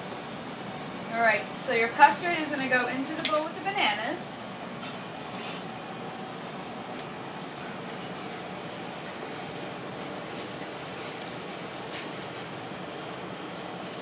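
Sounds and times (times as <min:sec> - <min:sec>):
kitchen equipment hum: 0:00.0 - 0:14.0
thin high whine: 0:00.0 - 0:14.0
brief scrape: 0:05.3 - 0:05.7.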